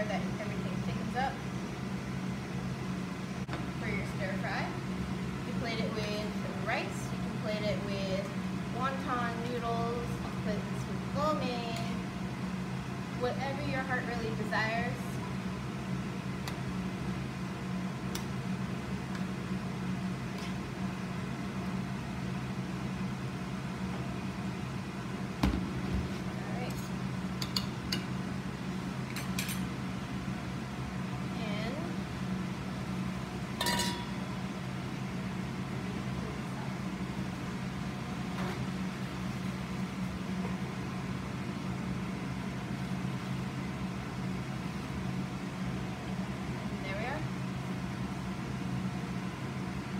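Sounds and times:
kitchen ventilation fan hum: 0:00.0 - 0:49.9.

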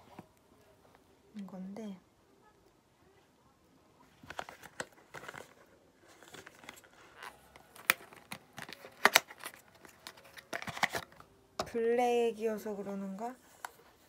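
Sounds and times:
cellophane crinkling and tearing: 0:04.2 - 0:11.2.

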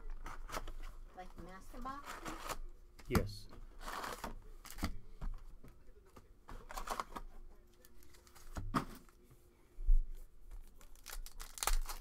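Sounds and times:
foil wrappers rustling: 0:06.6 - 0:08.6, 0:10.6 - 0:12.0.

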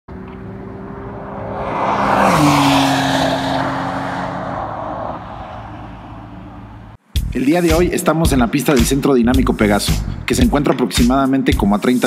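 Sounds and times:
sports car driving past: 0:00.1 - 0:07.0.

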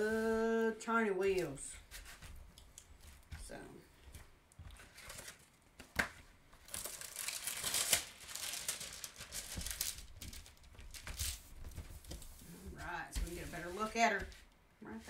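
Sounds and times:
plastic film crinkling: 0:04.6 - 0:14.6.

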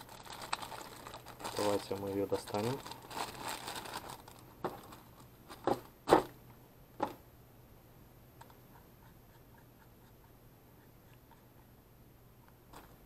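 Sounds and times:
plastic bag crinkling: 0:00.0 - 0:05.8.

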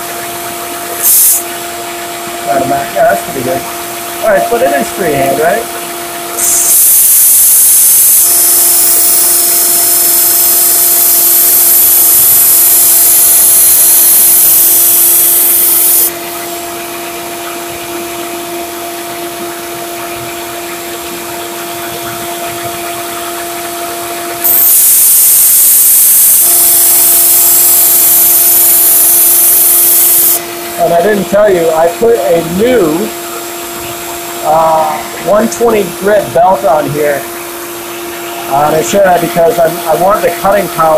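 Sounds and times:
belt sander humming: 0:04.2 - 0:16.6, 0:23.4 - 0:31.3
belt sander grinding steel: 0:06.3 - 0:16.2, 0:24.3 - 0:31.1.

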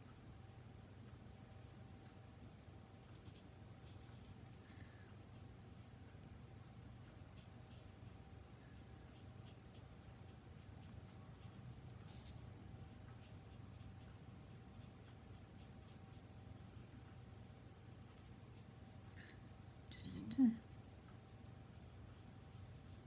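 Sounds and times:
low steady hum: 0:00.0 - 0:23.0
marker scratching on card: 0:07.3 - 0:08.2.

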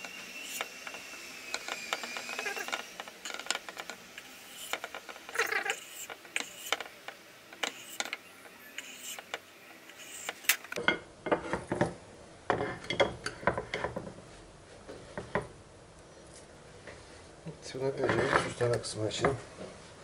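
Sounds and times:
knife scraping on wooden board: 0:01.6 - 0:10.6.

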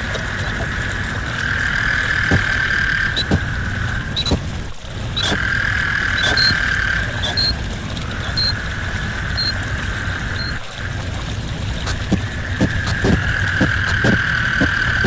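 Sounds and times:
short clicks with high beep: 0:05.2 - 0:05.4, 0:06.2 - 0:06.6, 0:07.2 - 0:07.6
hissing drone: 0:11.8 - 0:15.0.

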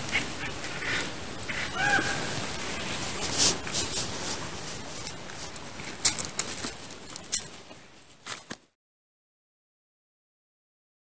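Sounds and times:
rustling in dry leaves: 0:00.0 - 0:08.6.

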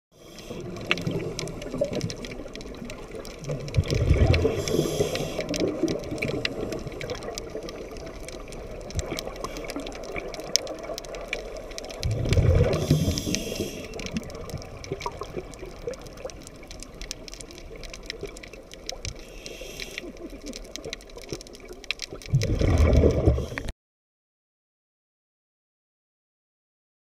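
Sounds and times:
sharp clicks and crackles: 0:00.2 - 0:23.7
regulator bubbling exhalation: 0:12.0 - 0:16.0, 0:22.3 - 0:23.7.

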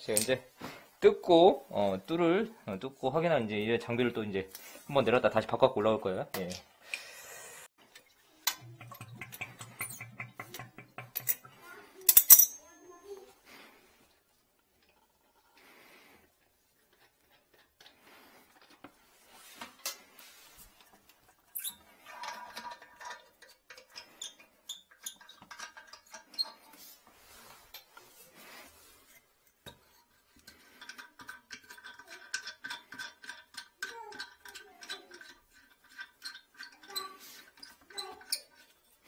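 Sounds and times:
clicks and taps: 0:08.0 - 0:12.2.

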